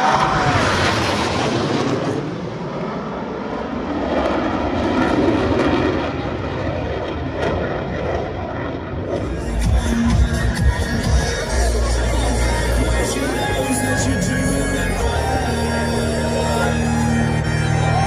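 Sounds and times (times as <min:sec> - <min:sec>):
jet fighters flying past: 0:00.0 - 0:09.5.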